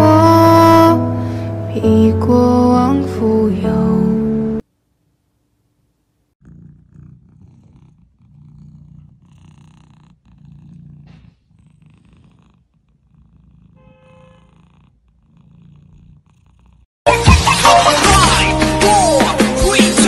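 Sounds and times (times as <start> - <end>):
cat purring: 6.4 - 16.9.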